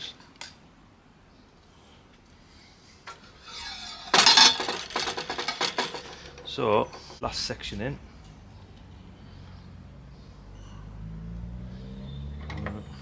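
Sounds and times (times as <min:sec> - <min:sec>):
metal tube scraping: 0:03.4 - 0:07.2
metal tubes clattering: 0:03.5 - 0:07.2.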